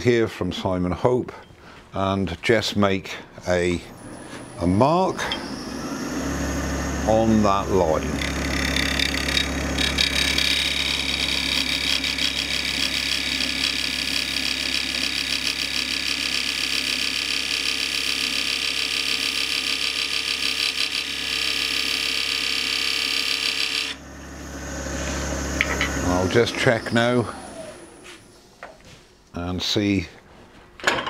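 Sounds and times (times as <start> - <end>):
lathe motor hum: 3.8 - 28.3
lathe tool cutting wood: 3.8 - 28.3.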